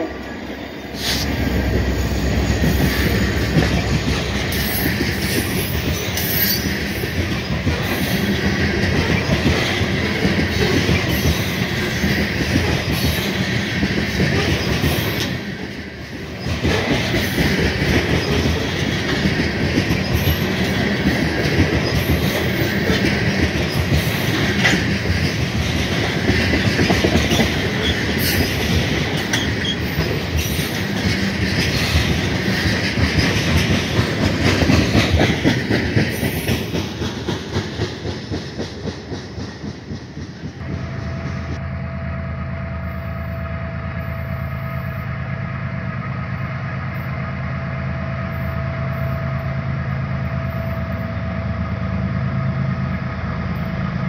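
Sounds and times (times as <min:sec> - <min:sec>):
freight train wheels clicking: 0:00.0 - 0:41.6.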